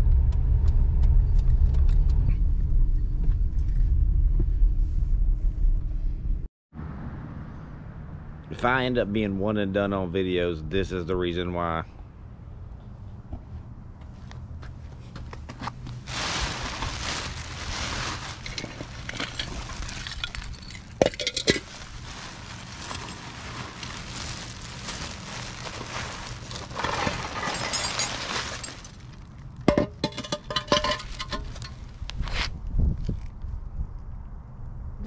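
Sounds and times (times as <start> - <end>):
plastic bag crinkling: 16.0 - 29.4
ceramic pieces clinking: 18.5 - 21.7, 26.9 - 28.9, 29.7 - 31.7.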